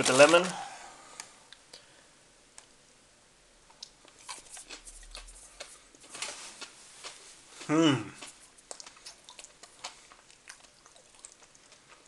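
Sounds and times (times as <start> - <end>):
mouth chewing sounds: 3.7 - 12.0.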